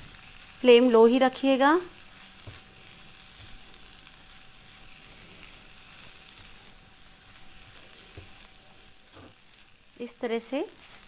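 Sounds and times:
beans sizzling in a pan: 0:00.0 - 0:11.0
spatula stirring: 0:02.0 - 0:09.8, 0:10.7 - 0:11.0.

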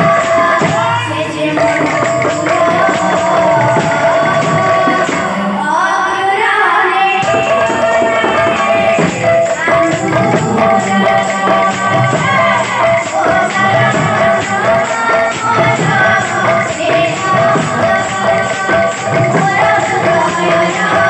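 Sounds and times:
barrel drum beating: 0:00.0 - 0:05.6, 0:07.2 - 0:21.0
person singing: 0:00.0 - 0:21.0
hand cymbals: 0:06.8 - 0:21.0.

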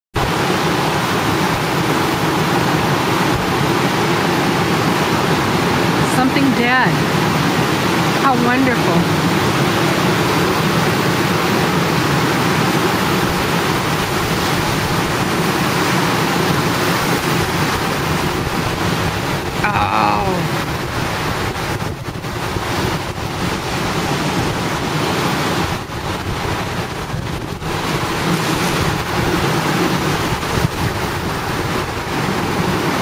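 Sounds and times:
ocean surf breaking: 0:00.2 - 0:33.0
wind buffeting microphone: 0:08.9 - 0:19.7, 0:20.4 - 0:33.0.

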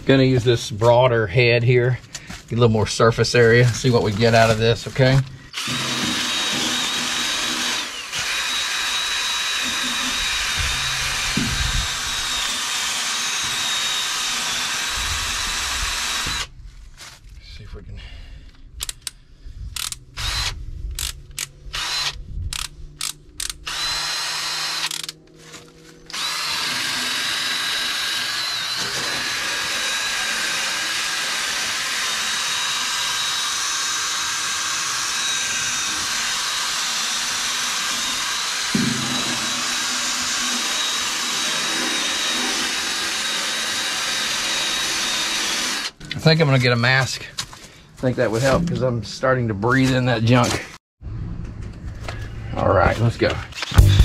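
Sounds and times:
drill wire brush scrubbing steel: 0:03.4 - 0:16.4, 0:26.1 - 0:46.8.

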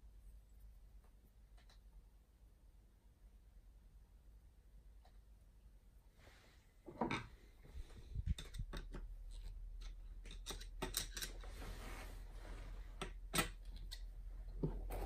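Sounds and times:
metal clicks and taps: 0:08.4 - 0:11.3.

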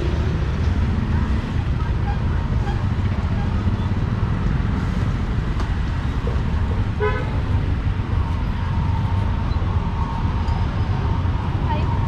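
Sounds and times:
low traffic rumble: 0:00.0 - 0:12.0
vehicle horn toot: 0:07.0 - 0:07.3.

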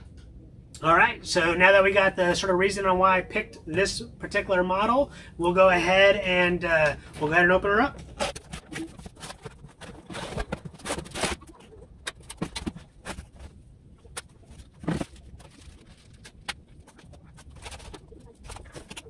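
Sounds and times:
cardboard scraping and rustling: 0:08.0 - 0:13.6, 0:14.3 - 0:19.0
plastic bag crinkling: 0:08.0 - 0:19.0.

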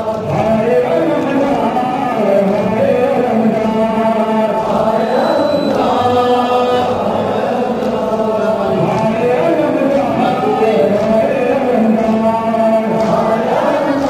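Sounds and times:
crowd of men chanting: 0:00.0 - 0:14.0.

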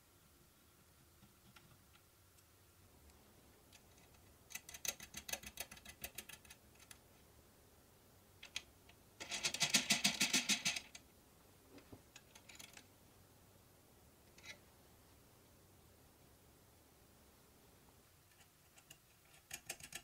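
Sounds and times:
metallic clicking and rattling: 0:08.4 - 0:11.0, 0:12.1 - 0:12.9, 0:18.3 - 0:20.0.

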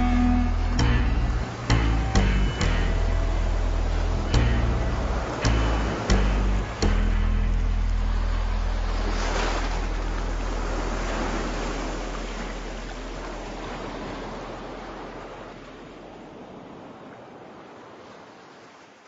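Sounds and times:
low bass note ringing: 0:00.0 - 0:13.2
rushing surf-like wash: 0:00.0 - 0:18.9.

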